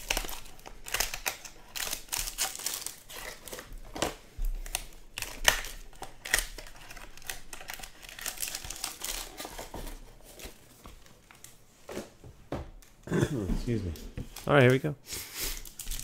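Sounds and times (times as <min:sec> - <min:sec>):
foil wrappers crinkling: 0:00.0 - 0:11.6, 0:15.2 - 0:16.0.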